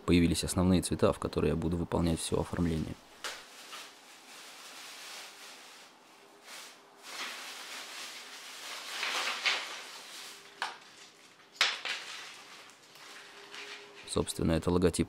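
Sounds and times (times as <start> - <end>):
plastic bag rustling: 2.6 - 14.3
paper scattering on concrete: 3.2 - 14.2.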